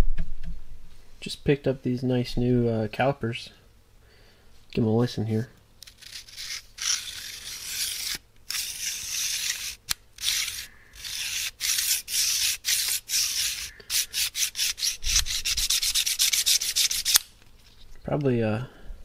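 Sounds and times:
caliper jaw scraping along beam: 5.8 - 17.3.

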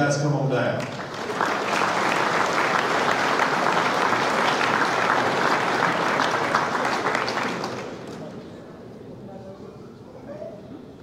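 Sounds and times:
audience applauding: 0.8 - 8.5.

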